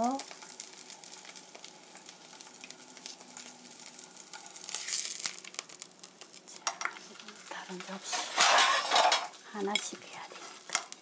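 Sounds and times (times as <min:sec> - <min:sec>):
tofu sizzling in oil: 0:00.0 - 0:11.0
metal spatula scraping pan: 0:07.9 - 0:10.6.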